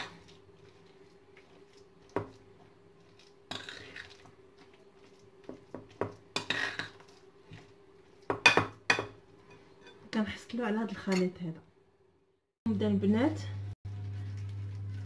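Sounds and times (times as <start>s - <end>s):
metal spoon stirring in glass bowl: 3.0s - 10.0s.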